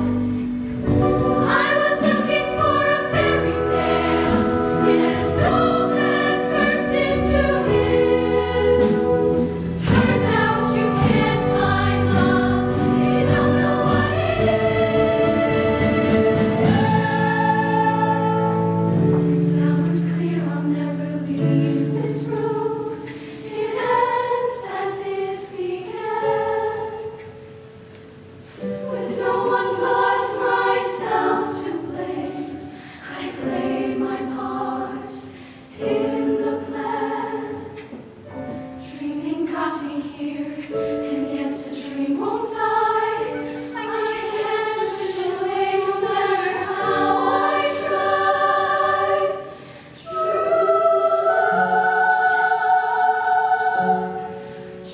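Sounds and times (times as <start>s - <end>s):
low instrumental accompaniment: 0.0s - 24.3s
women's choir singing in harmony: 0.0s - 54.9s.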